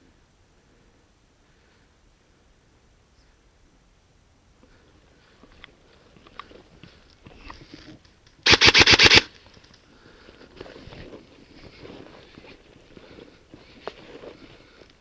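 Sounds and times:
airsoft gun full-auto burst: 8.4 - 9.3.

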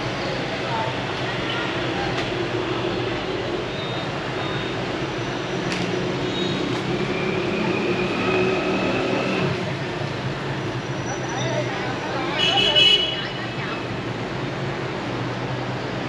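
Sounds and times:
motorbike and car engines passing: 5.7 - 12.3.

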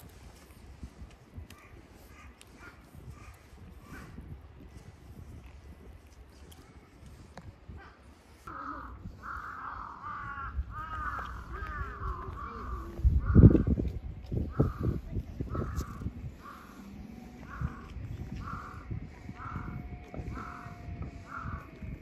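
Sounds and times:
crow cawing: 8.5 - 13.8, 14.5 - 21.8.

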